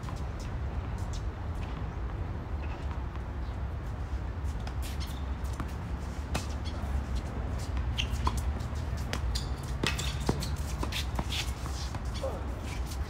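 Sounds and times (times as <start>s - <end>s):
tennis balls struck by rackets: 7.6s - 12.4s.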